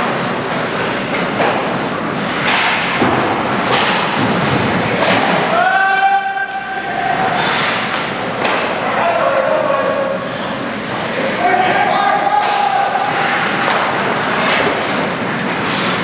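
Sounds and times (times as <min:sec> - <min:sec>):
sticks knocking puck: 0:02.4 - 0:04.4, 0:07.4 - 0:08.8.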